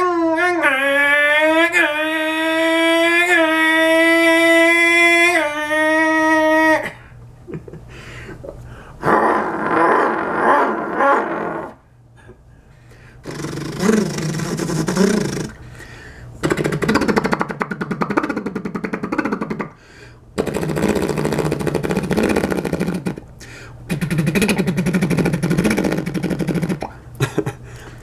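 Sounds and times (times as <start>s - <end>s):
man imitating an engine: 0.0s - 7.8s, 13.2s - 15.6s, 16.4s - 19.8s, 20.4s - 23.3s, 23.9s - 27.6s
man making rough rasping mouth sound: 13.2s - 15.6s, 16.4s - 19.8s, 20.4s - 27.0s.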